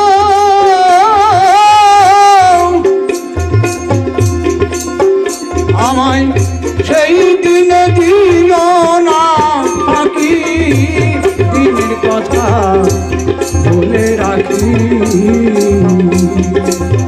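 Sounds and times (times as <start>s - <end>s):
harmonium chords: 0.0s - 17.0s
plucked string instrument: 0.0s - 17.0s
tabla rhythm: 0.0s - 17.0s
bamboo flute melody: 9.6s - 10.8s, 11.5s - 14.0s.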